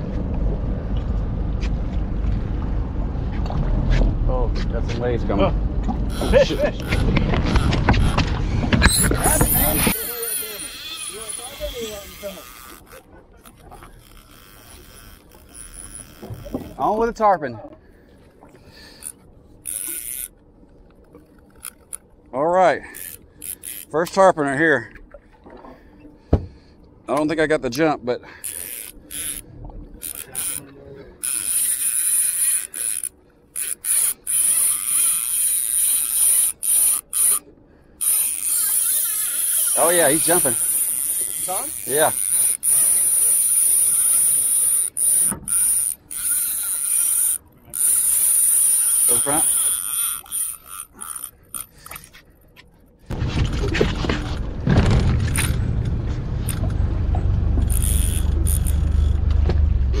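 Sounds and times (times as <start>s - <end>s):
boat motor humming: 0.0s - 60.0s
fishing reel drag buzzing: 6.1s - 8.2s, 8.8s - 17.0s, 18.6s - 20.4s, 21.0s - 22.1s, 22.8s - 24.2s, 28.3s - 52.5s, 57.6s - 59.2s.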